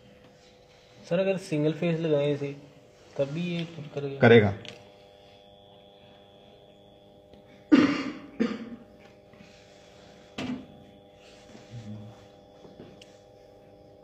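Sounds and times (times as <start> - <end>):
electrical hum: 0.0 - 14.0
faint high whine: 0.0 - 14.0
person coughing: 7.7 - 9.0.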